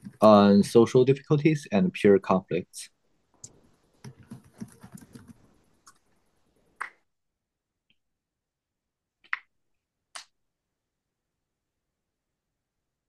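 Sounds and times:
keyboard keys clicking: 0:04.0 - 0:06.0.

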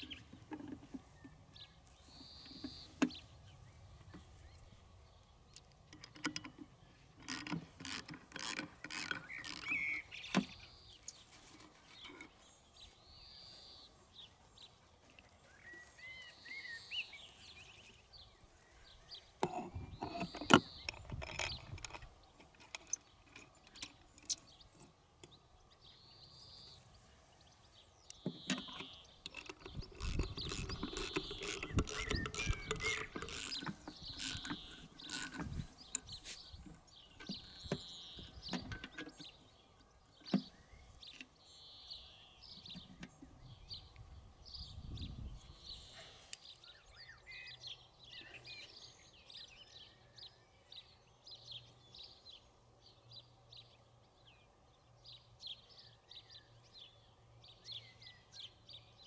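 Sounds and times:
birds chirping: 0:00.0 - 0:59.0
machine parts clicking and ratcheting: 0:07.2 - 0:09.9, 0:28.6 - 0:36.2.

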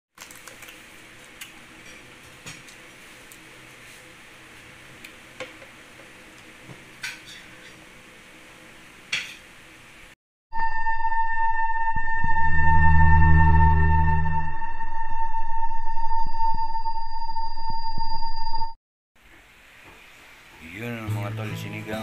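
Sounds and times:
sustained ringing musical tone: 0:10.5 - 0:17.6
steady low hiss: 0:19.2 - 0:22.0.

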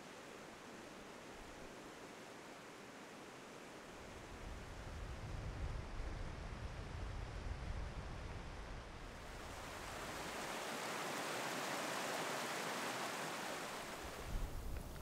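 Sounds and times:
stream rushing over rocks: 0:09.2 - 0:14.3.

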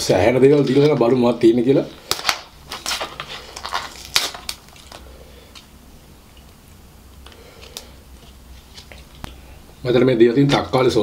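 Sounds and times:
paper wrapping crinkling: 0:02.0 - 0:05.7, 0:07.2 - 0:09.4.

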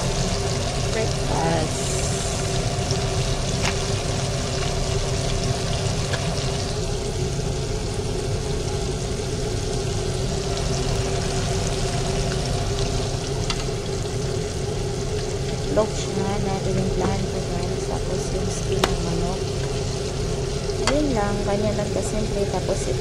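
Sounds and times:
chicken skin sizzling in oil: 0:00.0 - 0:23.0
steady low hum: 0:00.0 - 0:23.0.

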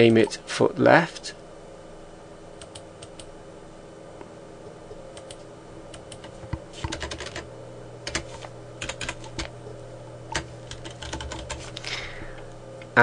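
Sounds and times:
low steady hum: 0:00.0 - 0:13.0
keyboard typing: 0:05.1 - 0:07.4, 0:08.0 - 0:09.5, 0:10.3 - 0:11.7.

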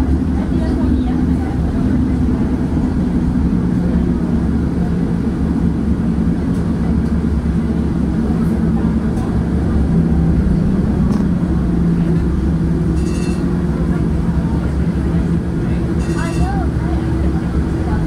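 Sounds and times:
streetcar wheels rumbling on rails: 0:00.0 - 0:18.0
motor and gearing hum: 0:04.9 - 0:18.0.

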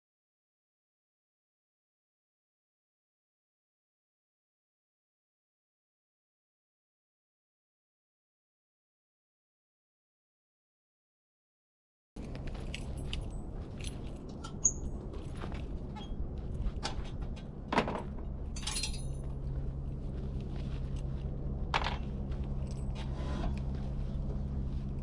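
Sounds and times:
steady low hum: 0:12.2 - 0:25.0
ringing metallic clink: 0:18.6 - 0:19.2.

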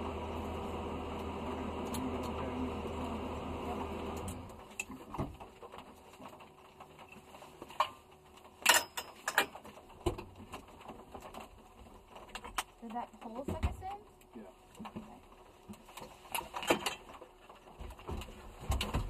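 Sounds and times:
car engine running: 0:00.0 - 0:04.8
clicks and knocks in car cabin: 0:17.8 - 0:19.0.

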